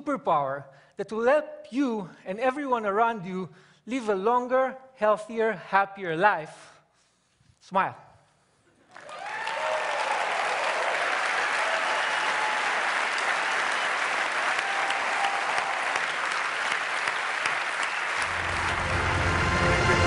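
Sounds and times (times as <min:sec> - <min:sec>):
audience applauding: 0:08.9 - 0:20.0
audience cheering: 0:08.9 - 0:20.0
music: 0:18.2 - 0:20.0.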